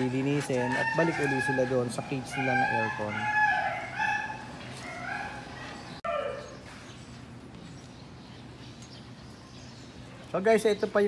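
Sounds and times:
dogs whining and yipping: 0.0s - 6.7s.

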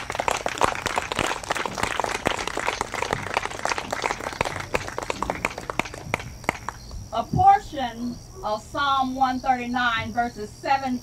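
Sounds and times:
crowd clapping: 0.0s - 6.9s.

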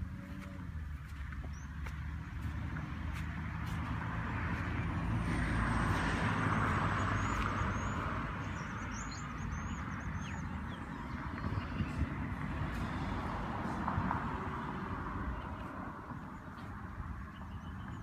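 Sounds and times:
vehicle engine humming: 0.0s - 18.0s.

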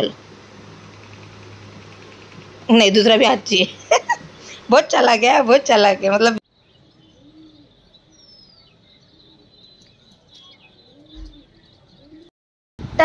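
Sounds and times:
high bird chirps: 6.5s - 12.3s
bird cooing: 6.9s - 8.3s, 9.0s - 12.3s.

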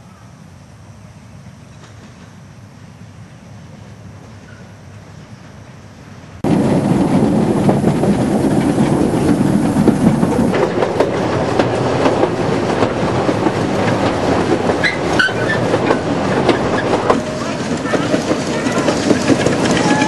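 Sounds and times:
train rumble: 0.0s - 20.0s
wheels clacking over rail joints: 6.4s - 20.0s.

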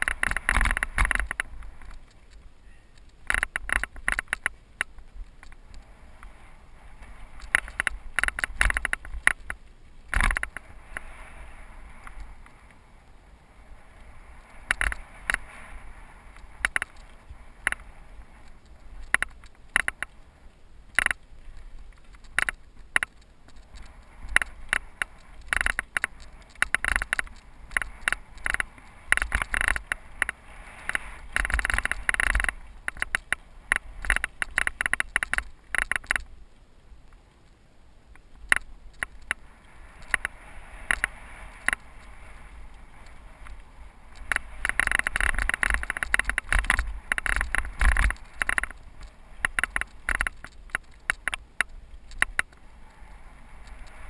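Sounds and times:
bike rattling over gravel: 0.0s - 12.6s, 14.2s - 36.4s, 38.4s - 52.6s.

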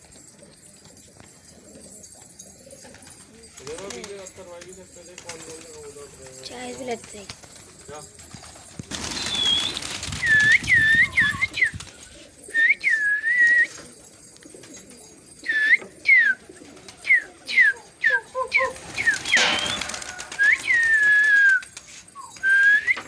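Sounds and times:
person whistling: 9.2s - 11.9s, 12.5s - 13.8s, 15.4s - 16.4s, 17.1s - 23.0s
rustling: 18.9s - 23.0s.

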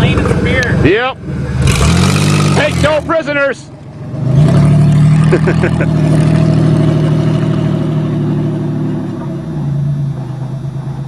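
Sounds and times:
car engine pulling under throttle: 0.0s - 11.0s.

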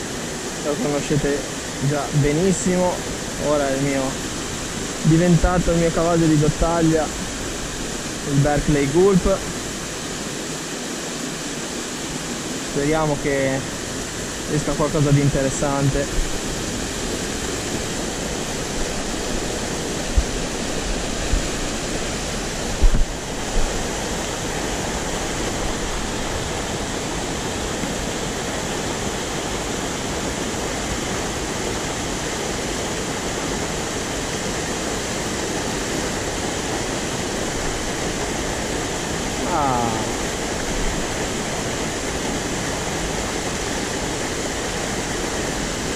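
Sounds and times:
water rushing over rocks: 0.0s - 45.9s.

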